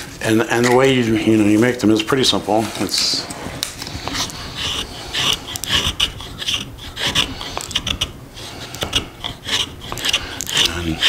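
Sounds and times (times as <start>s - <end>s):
knife scraping wooden stick: 2.7s - 11.0s.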